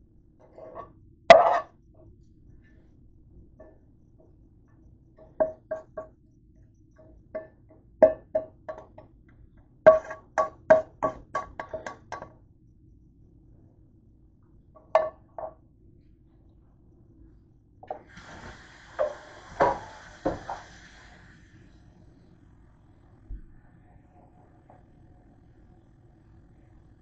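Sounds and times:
faint steady hum: 0.0s - 27.0s
utensil tapping frying pan: 5.2s - 6.1s, 7.0s - 9.1s, 9.9s - 12.4s, 14.8s - 15.6s, 17.9s - 20.8s.

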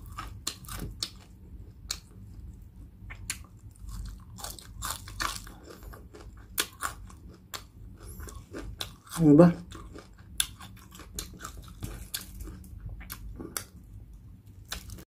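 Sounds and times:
chewing crispy food: 0.0s - 15.0s
crunching crackling skin: 3.1s - 13.8s, 14.6s - 15.0s.

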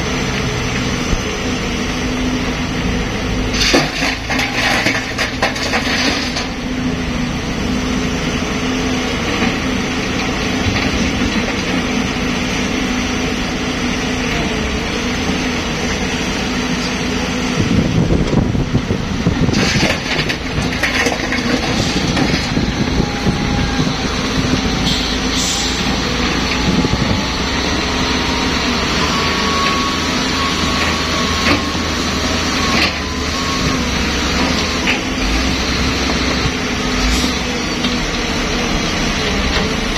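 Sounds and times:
excavator diesel engine running: 0.0s - 39.9s
soil and rock spilling into truck bed: 3.5s - 6.6s, 19.4s - 22.6s.

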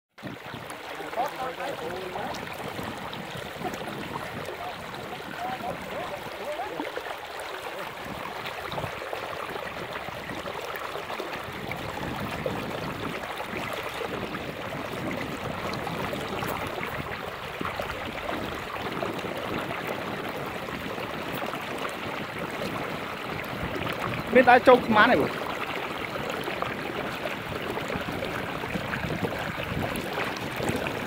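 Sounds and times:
floodwater rushing and lapping: 0.2s - 31.0s.

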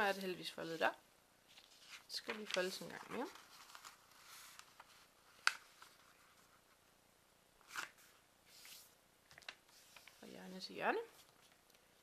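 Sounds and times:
paper rustling: 1.5s - 6.8s, 7.6s - 10.4s, 11.1s - 11.8s.

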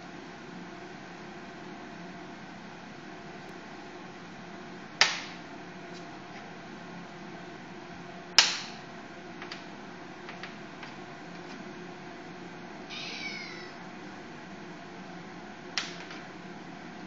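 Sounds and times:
cat meowing: 12.9s - 13.8s.

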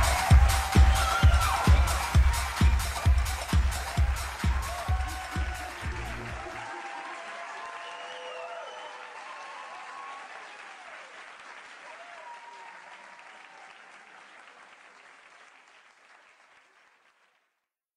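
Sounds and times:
audience applauding: 0.0s - 17.6s.

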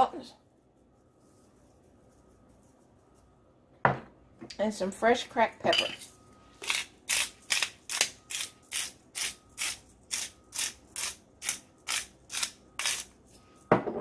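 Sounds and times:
pepper grinder grinding: 6.6s - 13.2s.

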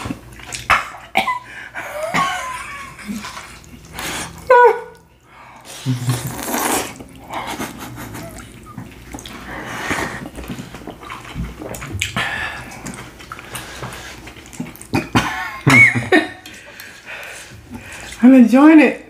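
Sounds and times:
person chewing and slurping noodles: 2.9s - 4.5s, 5.2s - 15.8s.

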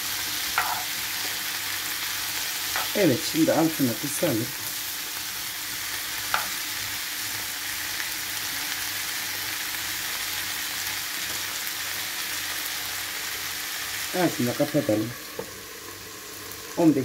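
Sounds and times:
vegetables sizzling in a pan: 0.0s - 17.0s
spatula stirring vegetables: 0.2s - 6.9s
knock on pan: 0.6s - 0.8s.

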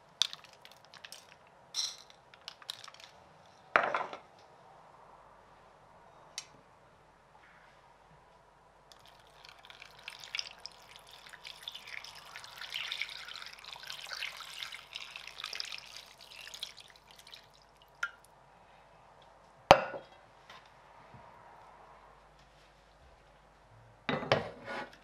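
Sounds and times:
water pouring into a pot: 8.9s - 18.2s.

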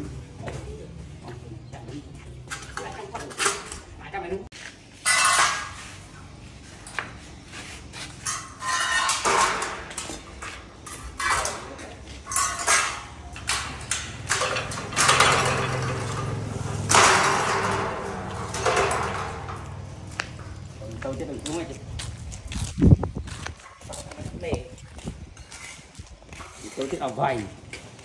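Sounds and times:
metal tubing clanking and rattling: 5.0s - 5.8s, 8.2s - 21.6s.

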